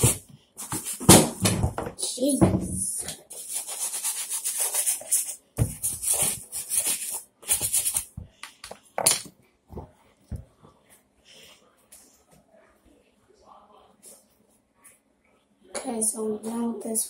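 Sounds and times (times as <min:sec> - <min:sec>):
brush scrubbing a sneaker: 0:03.3 - 0:08.2.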